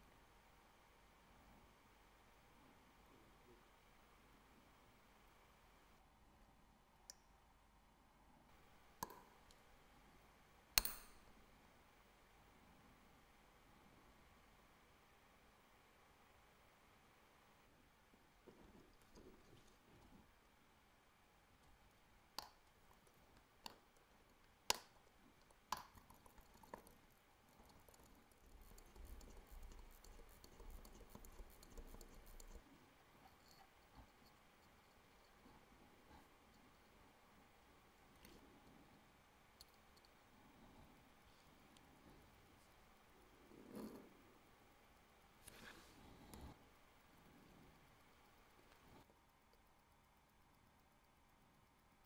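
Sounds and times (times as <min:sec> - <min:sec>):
metal tweezers clicking on watch: 0:10.8 - 0:11.2
soft rubbing and shuffling: 0:45.4 - 0:46.3.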